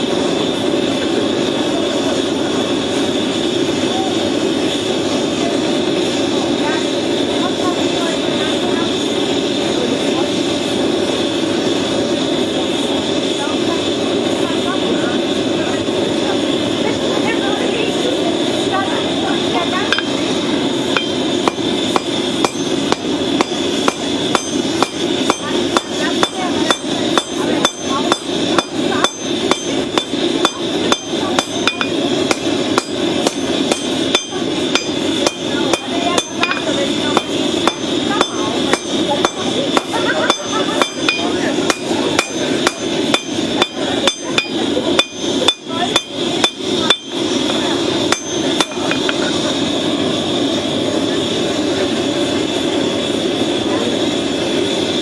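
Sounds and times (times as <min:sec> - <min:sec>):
steady rushing noise: 0:00.0 - 0:55.0
hammer striking hot steel on anvil: 0:19.9 - 0:20.3, 0:20.9 - 0:49.3.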